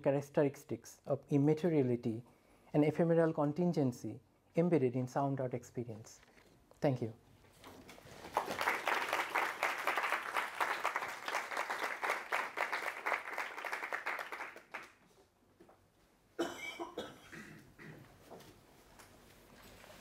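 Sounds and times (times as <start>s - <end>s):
audience applauding: 8.2s - 15.0s.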